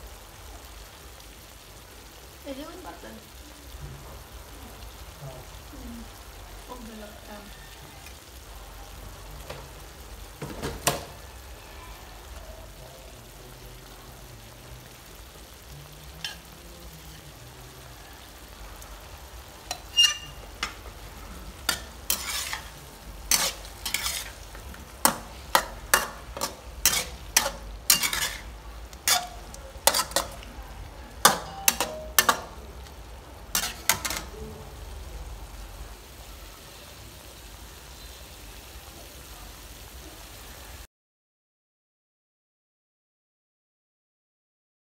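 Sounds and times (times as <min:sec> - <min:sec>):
frying sizzle: 0:00.0 - 0:40.9
metal spatula scraping a wok: 0:16.2 - 0:17.3, 0:19.6 - 0:30.5, 0:31.1 - 0:34.4.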